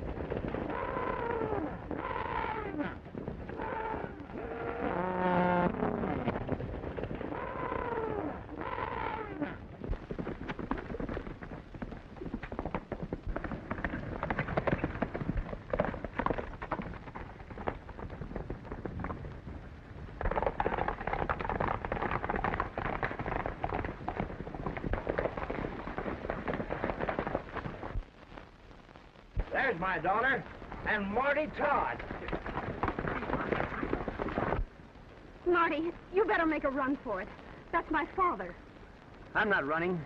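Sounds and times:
hoofbeats on dirt: 0.0 - 7.8, 8.9 - 28.1, 30.8 - 34.7.

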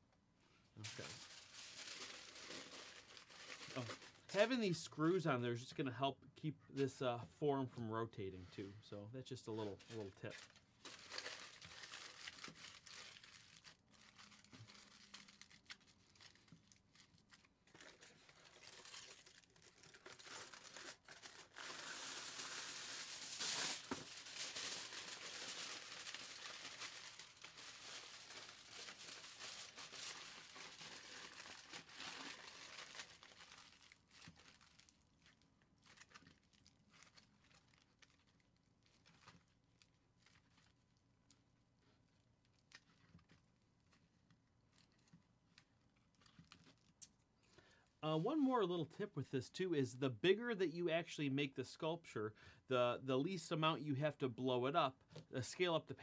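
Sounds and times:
aluminum foil crinkling: 0.8 - 4.6, 9.5 - 47.7.

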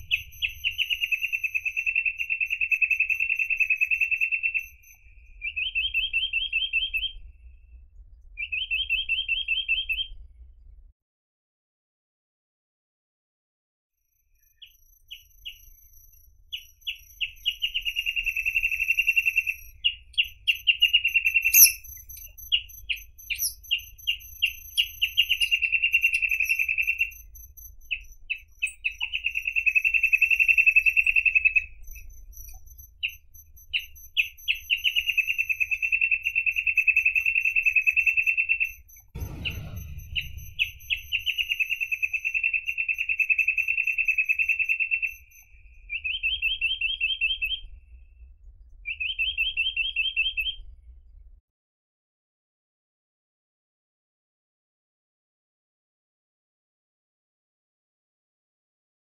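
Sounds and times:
bird singing fast trills: 0.0 - 7.2, 14.4 - 47.7
brief low rumble: 39.0 - 42.3.

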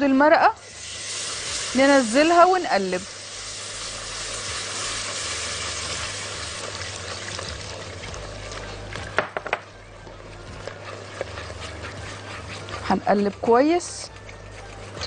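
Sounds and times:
roux sizzling in a metal pot: 0.0 - 15.0
broth pouring: 0.6 - 2.2
whisk tapping against pot: 6.0 - 15.0.

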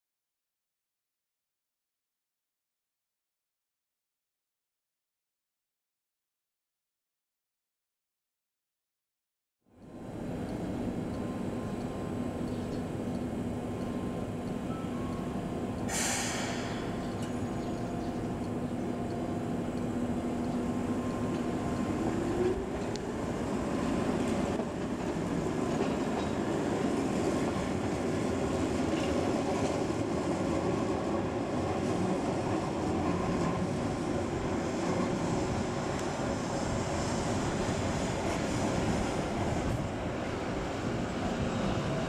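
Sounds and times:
electric train rumbling: 9.8 - 42.0
short hiss: 15.9 - 17.0.

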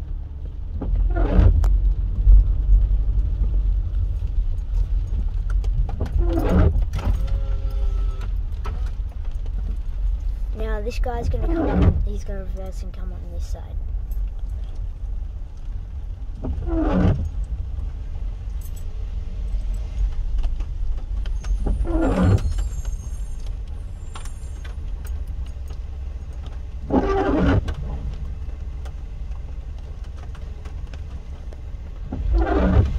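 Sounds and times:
windscreen wiper squeaking: 0.7 - 1.8, 4.9 - 12.3, 15.6 - 32.9.

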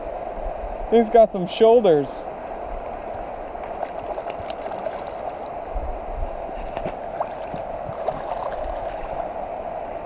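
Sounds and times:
river current rushing: 0.0 - 10.0
fish splashing at surface: 3.7 - 5.5, 6.6 - 9.3.

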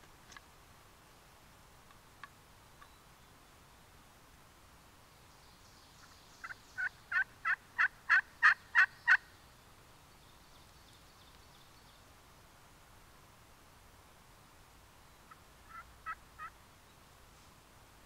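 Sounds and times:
turkey call yelps: 6.4 - 9.2, 15.3 - 16.6.

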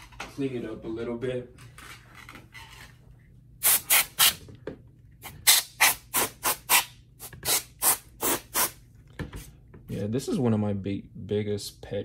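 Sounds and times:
compressed air spray blasts: 3.6 - 4.3, 5.4 - 8.8.

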